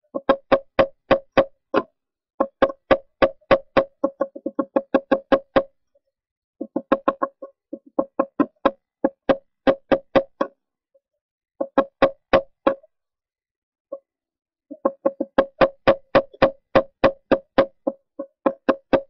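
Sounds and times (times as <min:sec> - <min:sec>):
woodpecker pecking wood: 0:00.1 - 0:05.8, 0:06.6 - 0:10.5, 0:11.6 - 0:12.9, 0:14.7 - 0:19.0.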